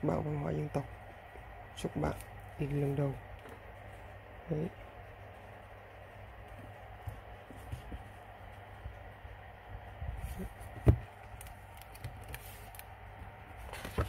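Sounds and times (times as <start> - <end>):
book handling taps and rustles: 10.3 - 12.8, 13.6 - 14.0.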